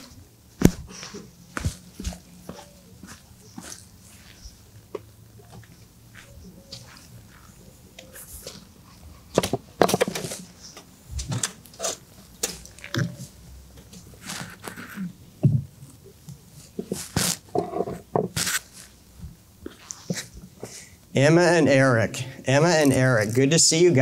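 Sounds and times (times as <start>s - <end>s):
chairs knocking and scraping: 9.3s - 10.5s, 16.8s - 18.4s.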